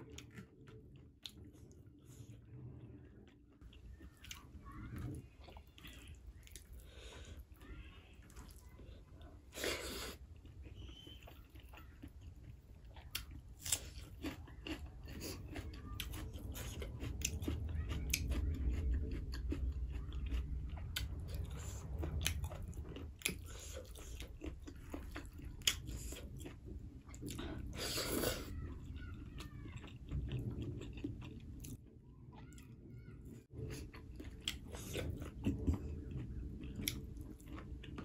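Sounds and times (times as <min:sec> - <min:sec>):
close chewing and biting: 0:00.0 - 0:32.7, 0:33.5 - 0:38.0.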